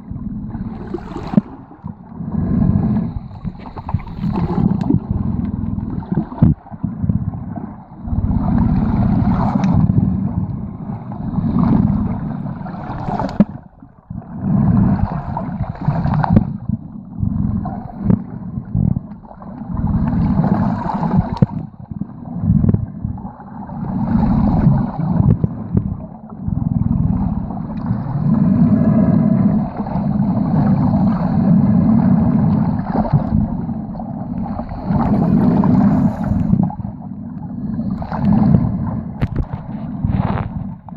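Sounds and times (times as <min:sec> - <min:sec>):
muffled underwater gurgling: 0:00.0 - 0:40.9.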